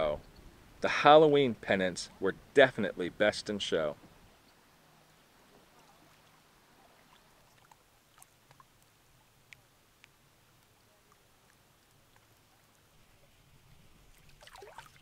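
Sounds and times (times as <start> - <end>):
faint background hiss: 0.0 - 15.0
soft ticks: 7.7 - 12.8.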